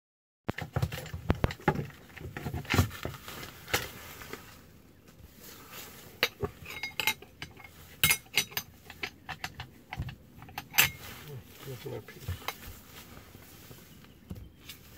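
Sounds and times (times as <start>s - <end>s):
metal clicks and clinks: 6.2s - 11.1s.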